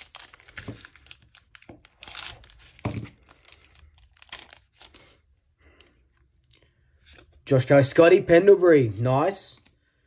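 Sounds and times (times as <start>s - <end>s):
wrapper tearing and crinkling: 0.0s - 5.1s.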